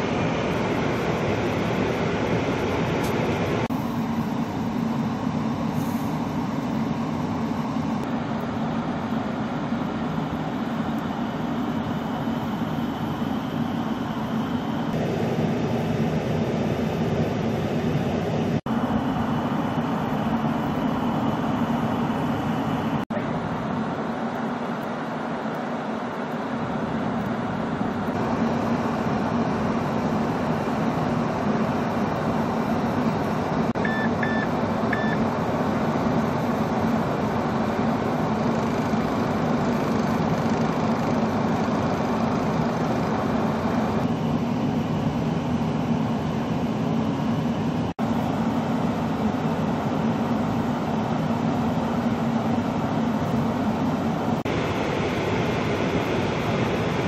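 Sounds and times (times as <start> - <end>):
snowblower engine running: 0.0 - 57.0
short high beeps: 33.8 - 35.2.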